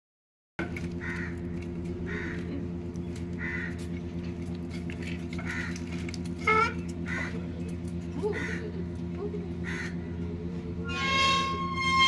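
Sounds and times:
steady low hum: 0.6 - 12.0
crow cawing: 1.0 - 2.5, 3.4 - 4.0, 5.4 - 5.9, 6.5 - 7.5, 8.3 - 8.8, 9.6 - 10.2.

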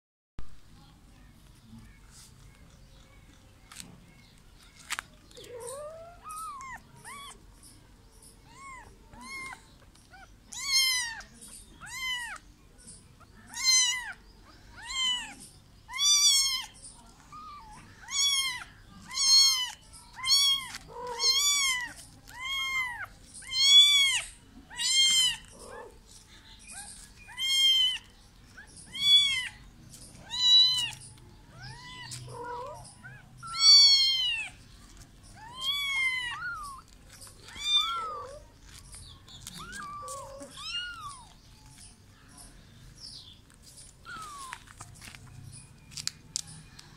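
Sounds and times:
kitten meowing: 8.5 - 9.6, 10.2 - 11.2, 11.8 - 12.4, 17.3 - 25.5, 27.3 - 28.1, 28.9 - 29.6, 30.3 - 31.0, 31.6 - 34.5, 39.5 - 41.3, 44.0 - 44.6.

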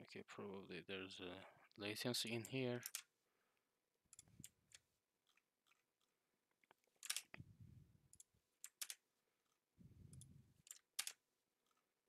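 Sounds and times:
computer mouse clicks: 4.1 - 7.4, 8.1 - 11.8.

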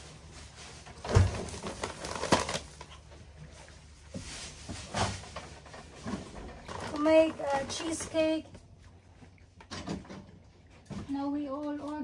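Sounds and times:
packaging and bag rustling: 0.0 - 3.0.

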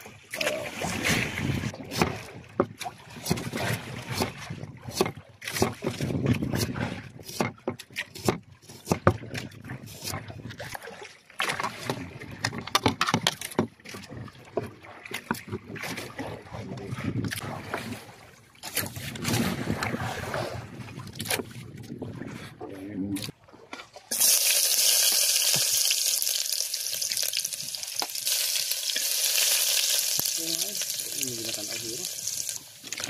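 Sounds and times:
knife chopping on wooden board: 1.9 - 2.2, 6.5 - 9.2.

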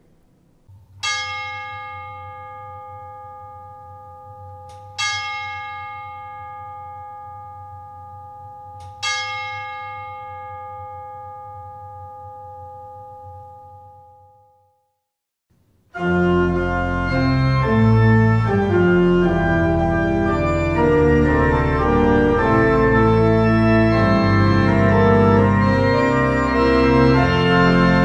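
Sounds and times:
bell ringing: 1.0 - 14.5.

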